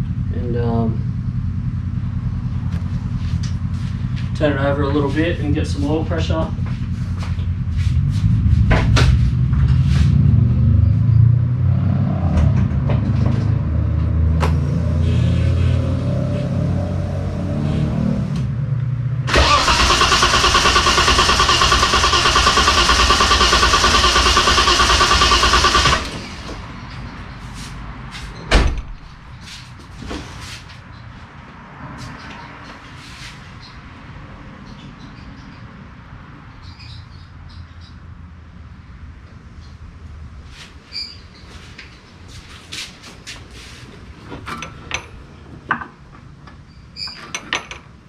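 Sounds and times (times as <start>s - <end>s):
engine cranking on starter: 19.3s - 26.7s
thump: 28.5s - 29.0s.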